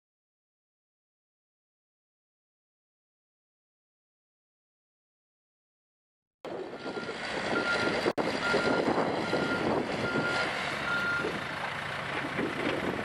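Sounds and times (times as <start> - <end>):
truck reversing alarm beeps: 6.5 - 11.5
diesel engine running: 6.5 - 13.0.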